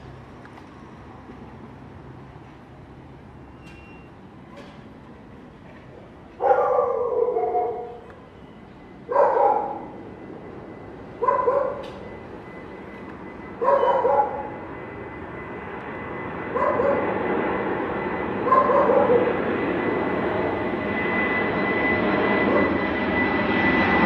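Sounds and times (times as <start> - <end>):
dog barking: 6.4 - 8.0, 9.1 - 9.9, 11.2 - 11.9, 13.6 - 14.6, 16.6 - 17.1, 18.5 - 19.3
jet rumble: 7.7 - 24.0.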